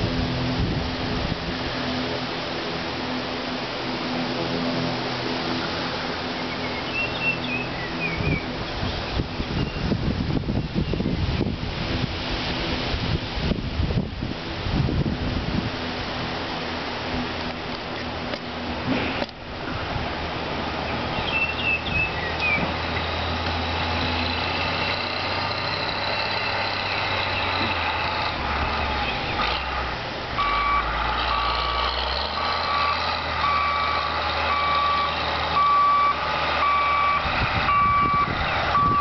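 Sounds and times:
heavy vehicle engine rumbling: 0.0 - 39.0
reversing alarm beeping: 30.4 - 39.0.

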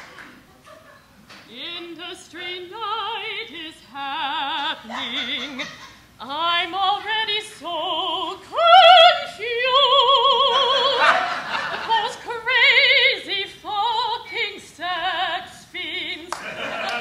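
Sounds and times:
woman singing opera: 1.5 - 16.5.

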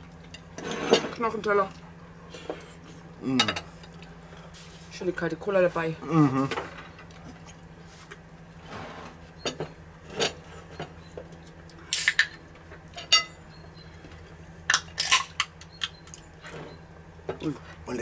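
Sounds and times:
cutlery clinking on plates: 13.0 - 13.4.

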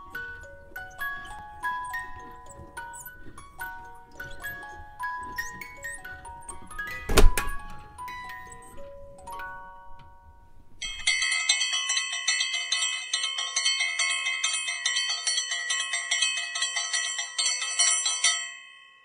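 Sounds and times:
bright bell ringing rapidly: 10.8 - 19.0.

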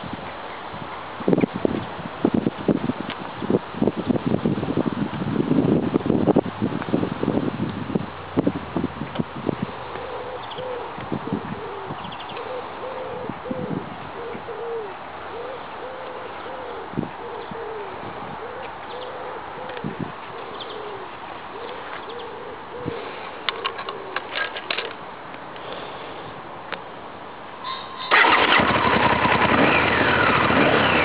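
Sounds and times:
dove cooing: 9.7 - 24.5.

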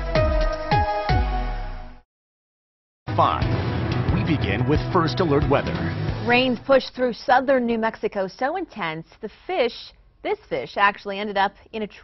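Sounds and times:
electronic news intro music: 3.1 - 6.9.

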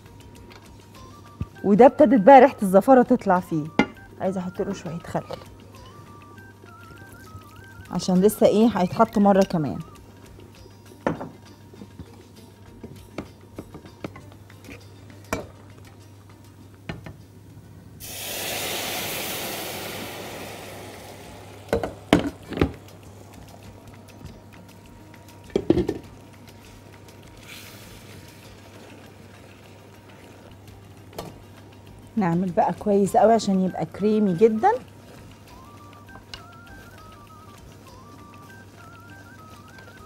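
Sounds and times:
burst of sizzling: 18.0 - 23.0, 27.4 - 28.6.

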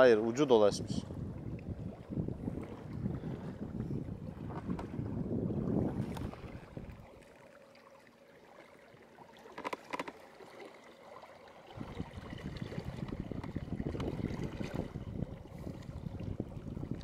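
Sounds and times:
wind buffeting the microphone: 0.0 - 7.2, 11.7 - 17.0
water lapping around a boat: 0.0 - 17.0.

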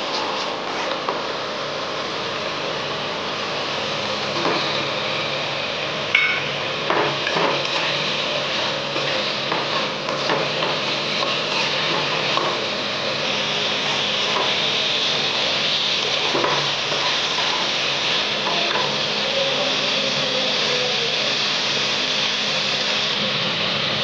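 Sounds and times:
food sizzling in a wok: 0.0 - 24.0
spatula scraping a pan: 7.0 - 12.6.

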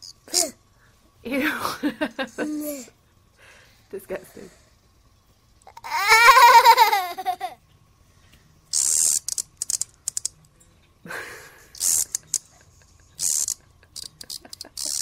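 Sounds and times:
small clicks: 8.7 - 11.0, 13.2 - 15.0
high raspy hissing bursts: 11.8 - 12.4.

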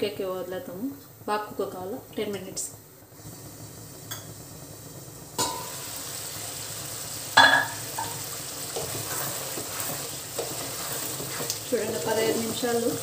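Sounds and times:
curry sizzling: 0.0 - 13.0
spatula scraping pan: 8.0 - 13.0.

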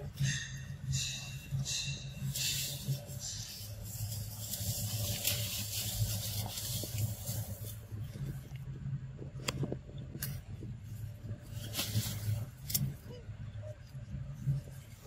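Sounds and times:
low hum: 0.0 - 15.0
dry leaves rustling: 1.0 - 8.6, 10.9 - 13.0.

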